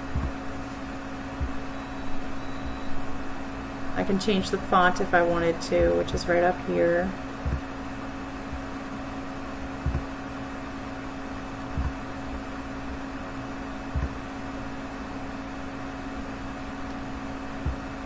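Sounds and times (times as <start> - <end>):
soft low thumps: 0.0 - 0.6, 1.3 - 3.0, 5.6 - 6.4, 7.2 - 8.8, 9.6 - 10.2, 11.6 - 13.0, 13.9 - 14.3, 17.6 - 18.0
computer hum and fan: 0.0 - 18.0.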